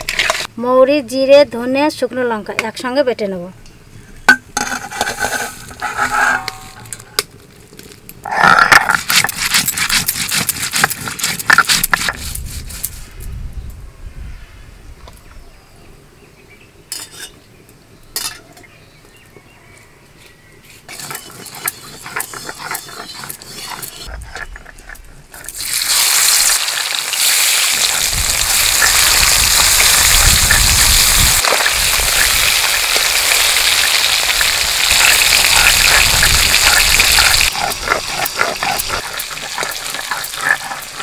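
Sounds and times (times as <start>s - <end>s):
steel bowl clinking: 4.3s - 7.0s, 32.0s - 41.0s
stone scraping on stone: 4.6s - 7.2s, 8.2s - 13.1s, 20.7s - 31.2s, 34.1s - 41.0s.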